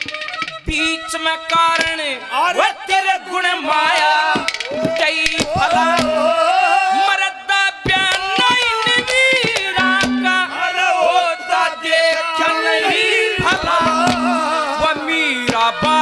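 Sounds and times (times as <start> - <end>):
man singing into a microphone: 0.6 - 16.0.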